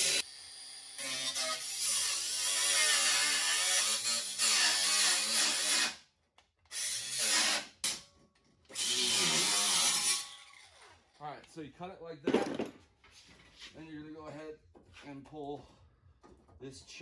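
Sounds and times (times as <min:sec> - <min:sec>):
power tool cutting steel: 0:00.0 - 0:06.0, 0:06.7 - 0:08.0, 0:08.7 - 0:10.9.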